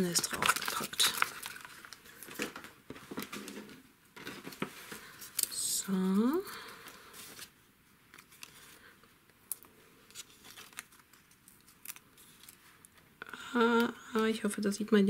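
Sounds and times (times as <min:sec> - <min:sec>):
paper and ribbon rustling: 0:00.0 - 0:05.6, 0:06.2 - 0:09.0, 0:10.0 - 0:13.0.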